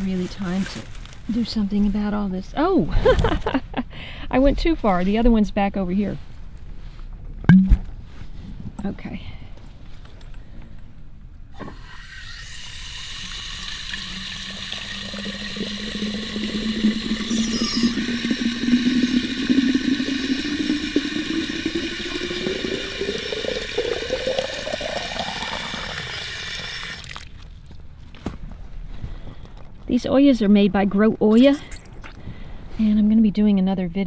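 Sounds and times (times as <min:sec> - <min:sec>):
water gurgling into clay pot: 0:11.6 - 0:27.4.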